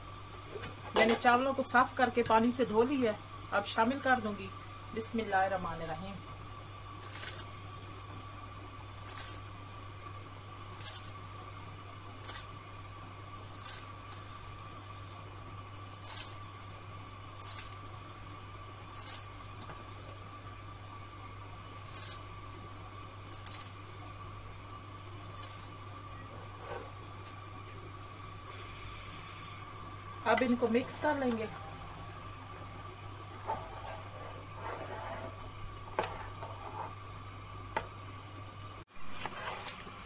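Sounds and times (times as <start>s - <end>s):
steady low hum: 0.0s - 40.0s
rice splashing into boiling water: 8.8s - 20.8s.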